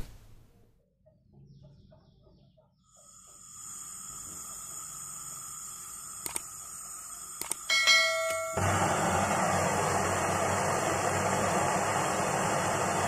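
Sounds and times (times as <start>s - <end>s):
gas torch hissing: 2.9s - 13.0s
sharp click: 6.2s - 6.4s, 7.4s - 8.4s.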